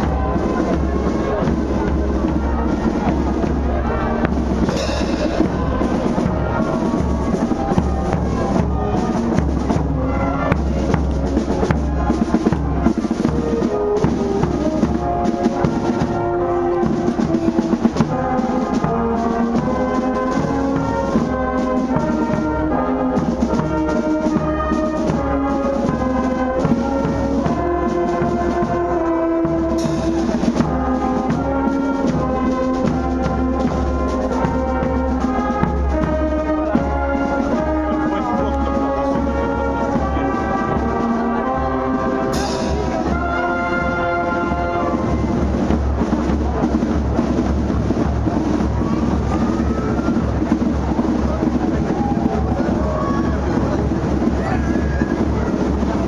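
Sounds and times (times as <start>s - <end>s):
brass band playing: 0.0s - 56.0s.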